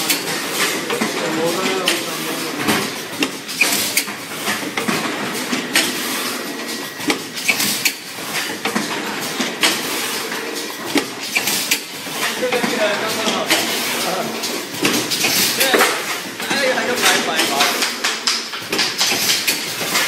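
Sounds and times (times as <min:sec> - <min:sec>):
packaging machine running: 0:00.0 - 0:20.0
sharp metallic clicks and clanks: 0:14.4 - 0:20.0.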